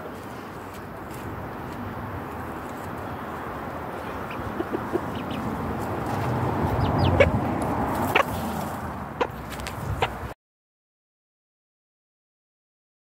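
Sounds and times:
chicken clucking: 2.6s - 8.5s, 9.2s - 10.3s.

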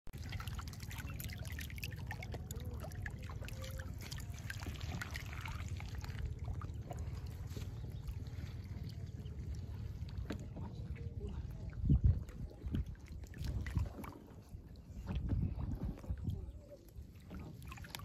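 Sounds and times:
water trickling through a channel: 0.1s - 18.0s
fish splashing: 0.2s - 9.3s
low rumble: 0.4s - 13.9s.

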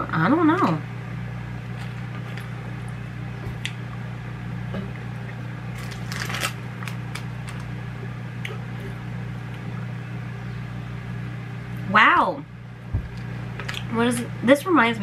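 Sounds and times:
steady low hum: 0.0s - 15.0s
small clicks and crackle: 5.8s - 7.7s.

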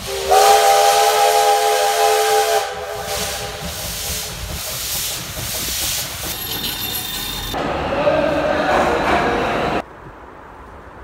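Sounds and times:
steam locomotive whistle chord: 0.0s - 3.6s
steam hissing: 0.0s - 7.6s
locomotive rumbling: 0.0s - 9.9s.

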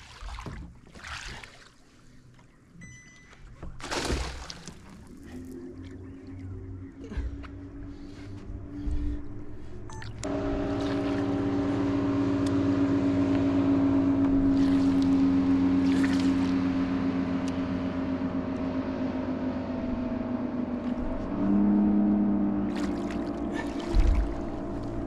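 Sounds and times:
outboard motor running: 2.1s - 25.0s.

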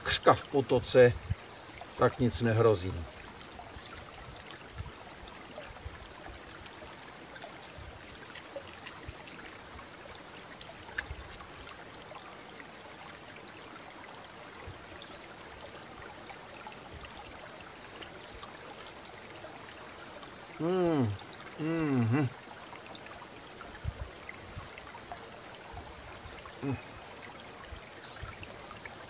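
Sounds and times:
brook babbling over stones: 0.0s - 29.0s.

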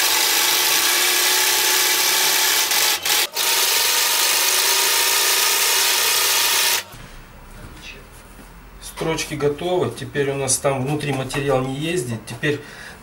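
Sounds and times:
sewing machine stitching: 0.0s - 6.9s.

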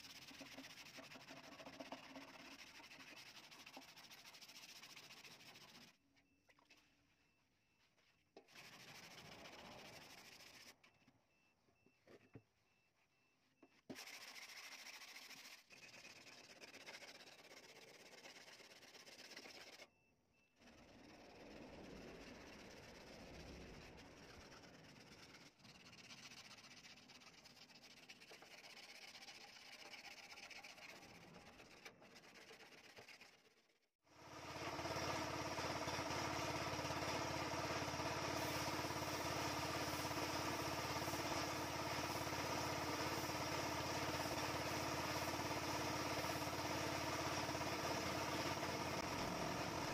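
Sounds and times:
air compressor running: 34.2s - 49.9s.

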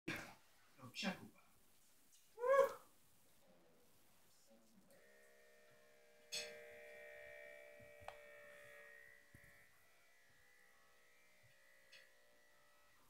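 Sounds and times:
faint ringing tones: 4.9s - 13.0s.

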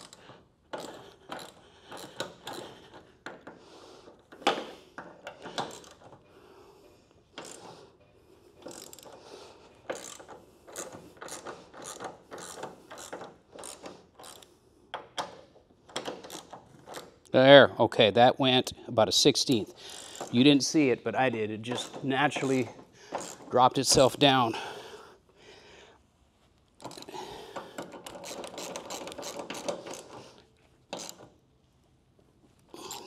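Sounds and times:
socket ratchet clicking: 0.0s - 3.6s, 4.3s - 6.2s, 7.3s - 7.8s, 8.6s - 17.1s, 21.7s - 23.5s, 26.8s - 31.3s.

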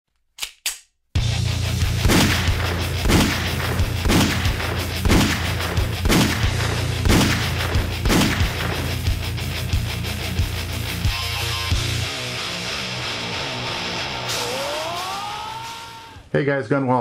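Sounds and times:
gunshots: 2.0s - 9.1s.

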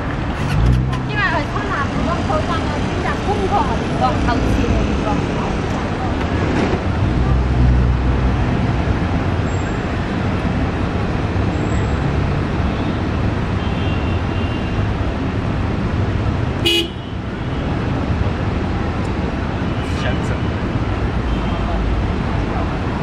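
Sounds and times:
city road traffic: 0.0s - 23.0s
short horn toot: 0.3s - 1.1s.

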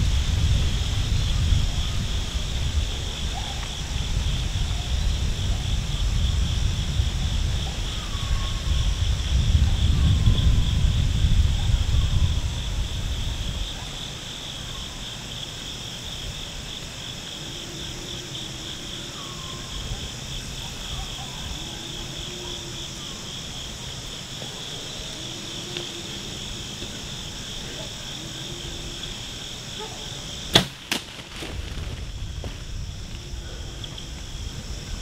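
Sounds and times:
wind buffeting microphone: 0.0s - 18.5s, 31.2s - 35.0s
high-pitched insect chorus: 0.0s - 35.0s.

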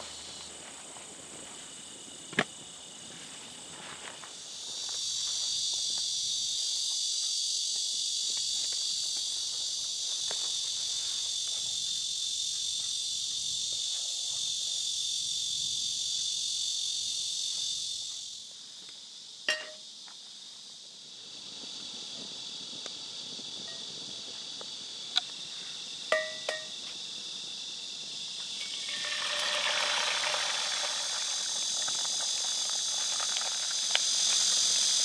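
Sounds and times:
insects chorus: 0.0s - 35.0s
sharp metallic clink: 19.5s - 19.8s, 26.1s - 26.7s.

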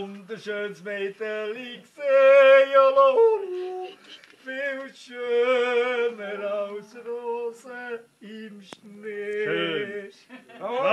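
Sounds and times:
man singing unaccompanied: 0.0s - 10.9s.

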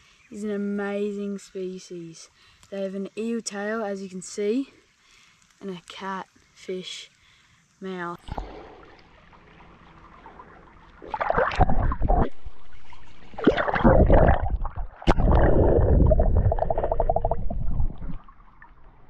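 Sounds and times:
muffled water rushing: 8.2s - 19.0s
water bubbling: 8.2s - 19.0s.

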